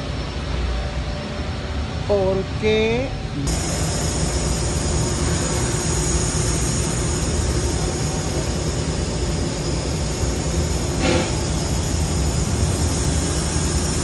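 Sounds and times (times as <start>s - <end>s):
industrial machinery rumble: 0.0s - 14.0s
high-pitched hiss: 3.4s - 14.0s.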